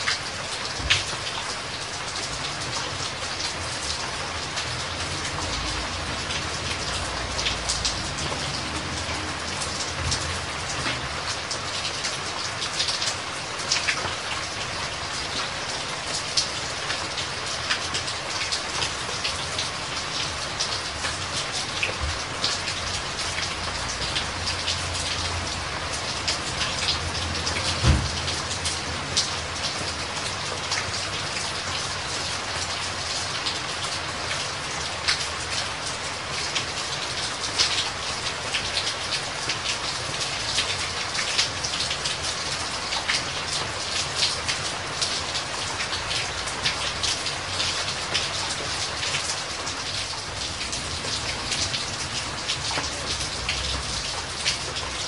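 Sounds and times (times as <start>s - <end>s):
stream running over rocks: 0.0s - 55.0s
brief low thump: 27.8s - 28.2s.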